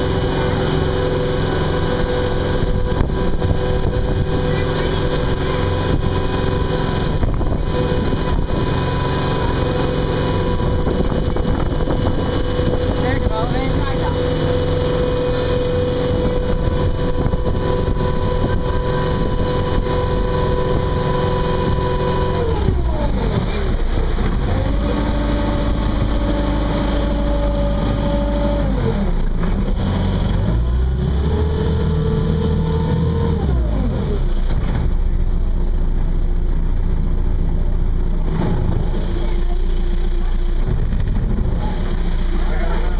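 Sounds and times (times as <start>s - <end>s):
boat engine running: 0.0s - 42.9s.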